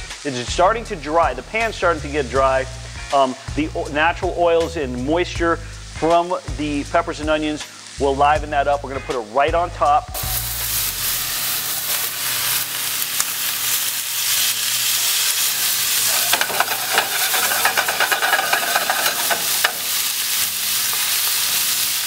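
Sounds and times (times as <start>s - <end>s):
vegetables sizzling in a skillet: 0.0s - 22.0s
stirring crackle and clatter: 11.7s - 14.6s, 15.2s - 21.7s.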